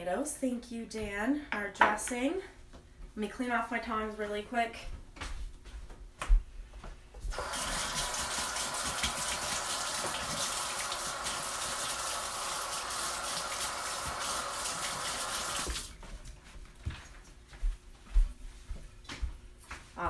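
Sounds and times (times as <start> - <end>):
kitchen tap running: 7.3 - 16.0.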